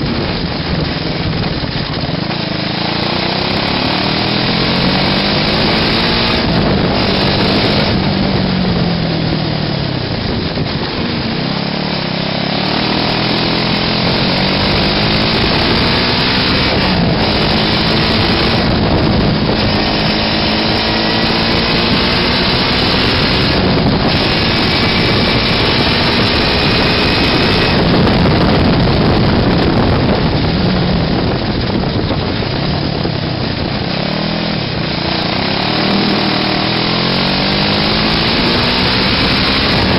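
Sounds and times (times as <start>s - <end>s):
small engine buzzing: 11.3s - 30.5s.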